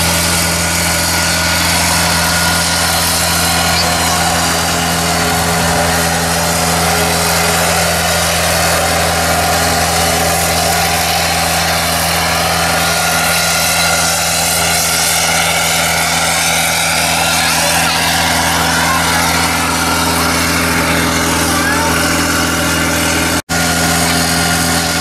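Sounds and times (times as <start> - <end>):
crop sprayer engine humming: 0.0 - 25.0.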